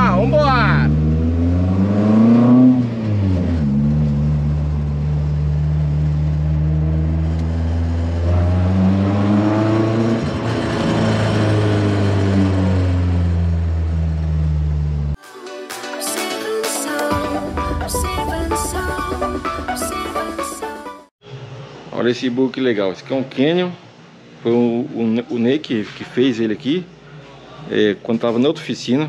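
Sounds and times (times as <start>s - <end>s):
buggy engine running: 0.0s - 15.2s.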